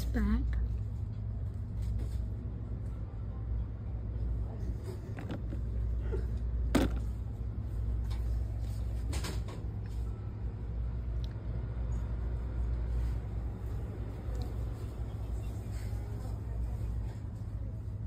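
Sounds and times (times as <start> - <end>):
steady low hum: 0.0 - 18.0
plastic containers knocking: 5.2 - 5.6, 6.7 - 7.1.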